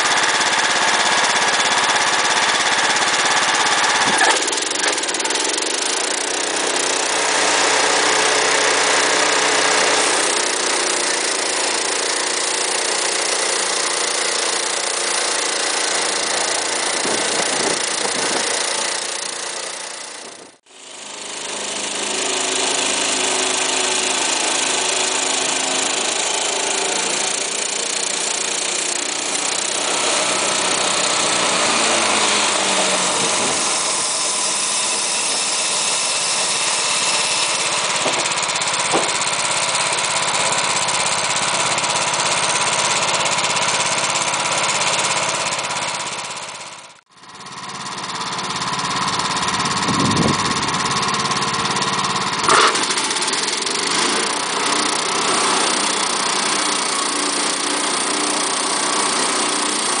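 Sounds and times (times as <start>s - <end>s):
sawmill engine and saw running: 0.0s - 60.0s
sharp knock: 38.0s - 39.3s.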